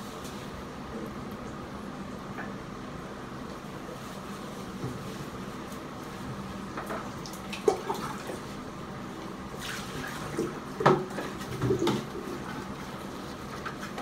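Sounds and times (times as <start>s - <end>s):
running water: 5.6s - 14.0s.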